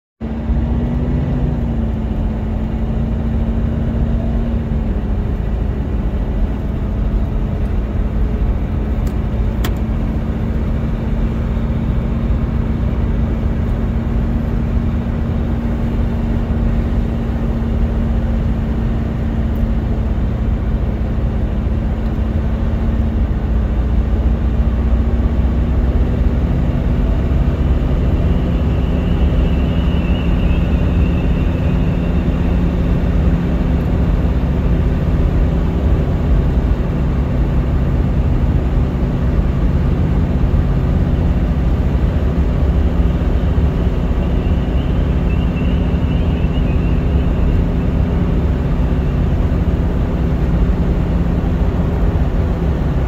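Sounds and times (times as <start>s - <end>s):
car engine cruising: 0.2s - 53.0s
tyre and road rumble: 24.6s - 53.0s.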